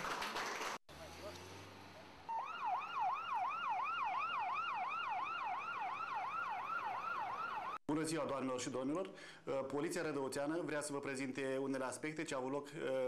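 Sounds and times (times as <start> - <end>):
emergency siren yelping: 2.3 - 7.8.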